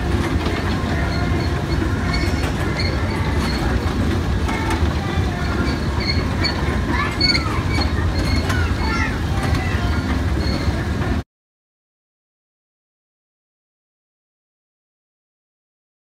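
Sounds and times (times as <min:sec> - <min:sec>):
carnival ride rumble: 0:00.0 - 0:11.2
high wheel squeak: 0:00.0 - 0:11.2.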